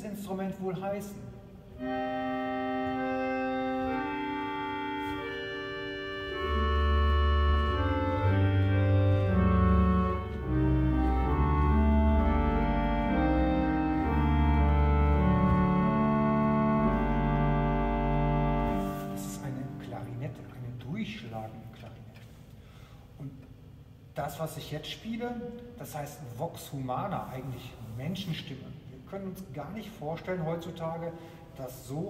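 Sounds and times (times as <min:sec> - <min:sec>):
pipe organ playing chords: 0:01.0 - 0:21.7
deep bass line: 0:06.3 - 0:18.9.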